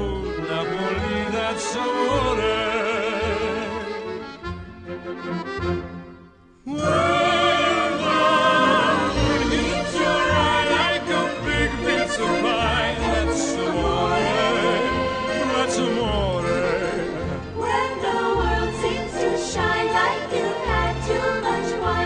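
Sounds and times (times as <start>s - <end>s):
instrumental backing music: 0.0s - 22.0s
person singing with vibrato: 6.6s - 22.0s.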